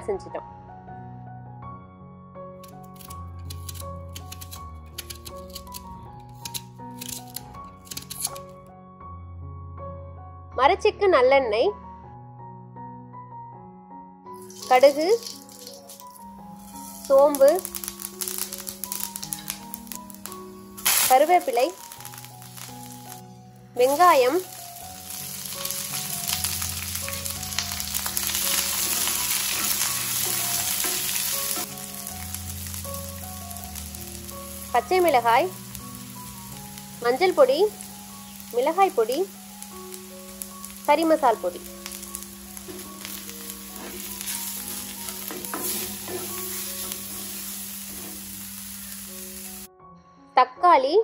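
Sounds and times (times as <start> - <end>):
onions sizzling in a frying pan: 14.4 - 49.7.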